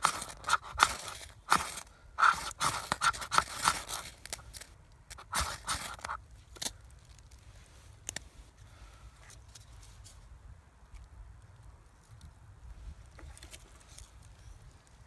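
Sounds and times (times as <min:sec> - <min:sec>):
knife scraping ferro rod: 0:00.0 - 0:06.2.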